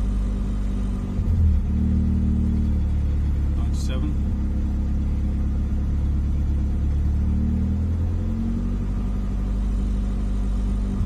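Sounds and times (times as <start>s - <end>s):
car engine low rumble: 0.0s - 11.0s.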